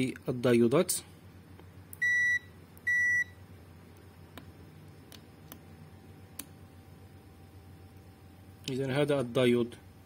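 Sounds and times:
multimeter short high beeps: 2.0 - 3.4.

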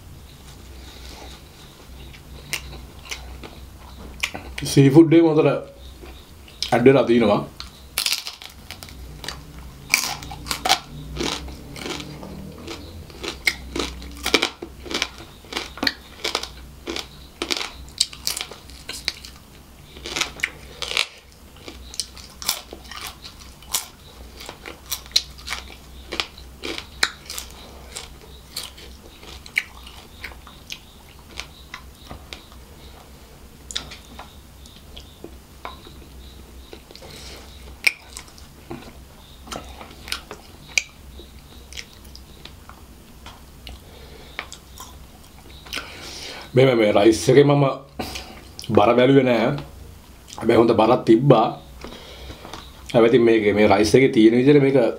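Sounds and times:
close chewing and crunching: 2.0 - 4.8, 5.8 - 6.8, 7.6 - 46.2.

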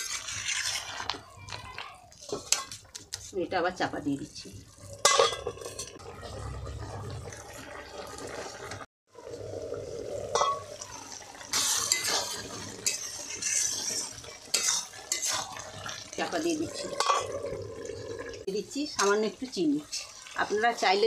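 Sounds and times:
metal utensil scraping pan: 0.0 - 6.1, 10.3 - 10.7, 11.5 - 17.4, 18.8 - 21.0
curry bubbling in wok: 0.0 - 21.0.

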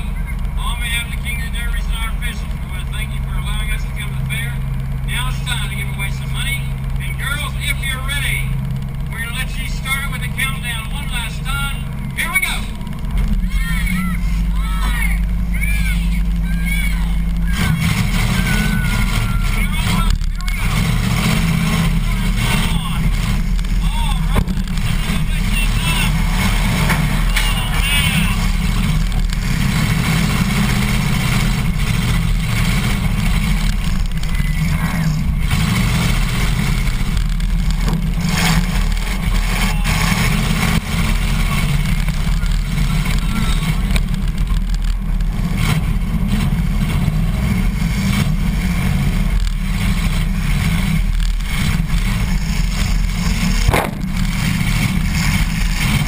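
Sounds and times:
car engine rumbling: 0.0 - 56.0
sharp bangs: 51.4 - 56.0.

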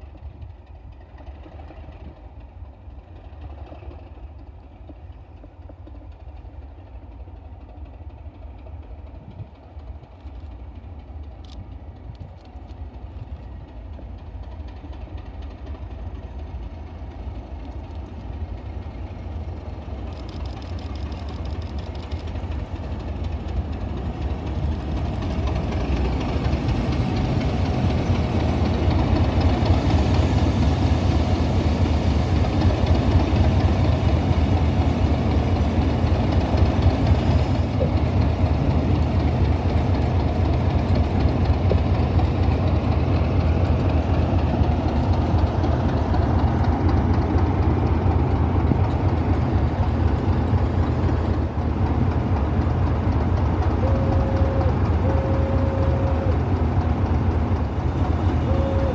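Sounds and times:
diesel locomotive engines passing: 0.0 - 58.9.

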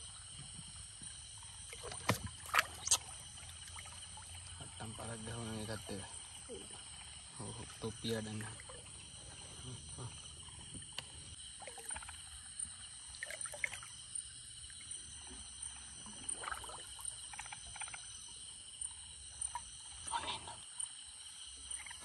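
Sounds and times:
night insects chorus: 0.0 - 22.0
water splashing while wading: 1.6 - 4.5.

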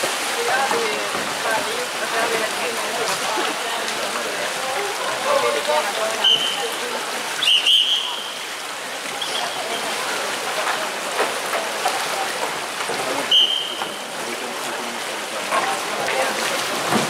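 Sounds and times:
paddles splashing in water: 0.0 - 17.0
referee's whistle blasts: 6.2 - 6.7, 7.4 - 8.4, 13.3 - 14.1.

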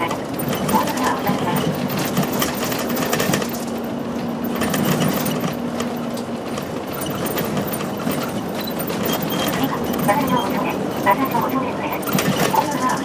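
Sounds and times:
bus engine and road drone: 0.0 - 13.0
rattling and ticking fittings: 0.0 - 13.0
steady engine hum: 0.0 - 13.0.

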